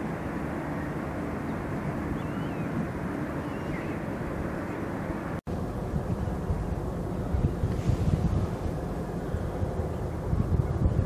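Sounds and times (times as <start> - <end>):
low outdoor rumble and hiss: 0.0 - 11.0
faint bird calls: 2.2 - 2.8, 3.4 - 4.0.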